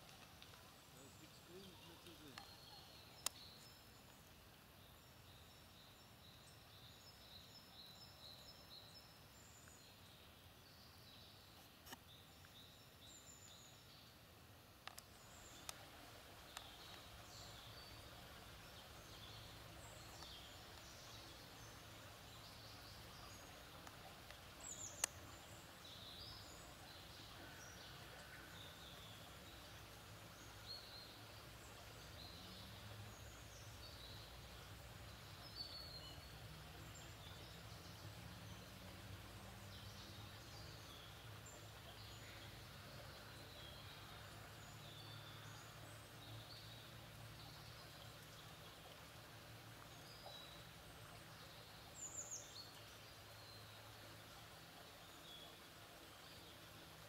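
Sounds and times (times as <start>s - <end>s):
faint bird chirps: 0.9s - 4.2s.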